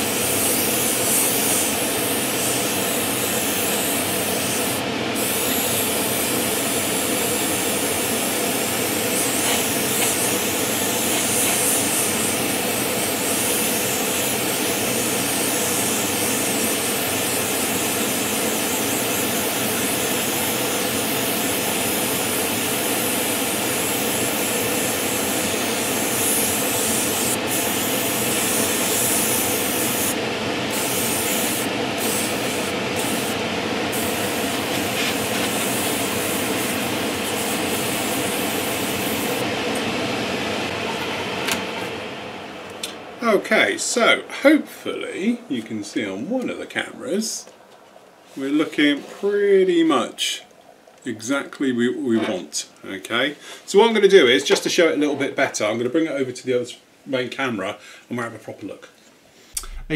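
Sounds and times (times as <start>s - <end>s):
airbrush spraying hiss: 0.0s - 39.4s.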